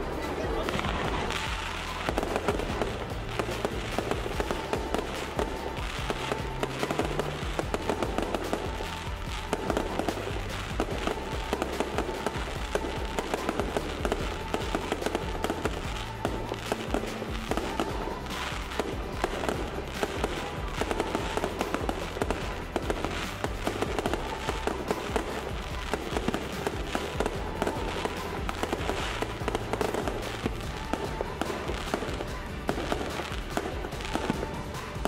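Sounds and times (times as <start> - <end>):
fireworks crackling and popping: 0.0 - 35.0
music with steady bass line: 0.0 - 35.0.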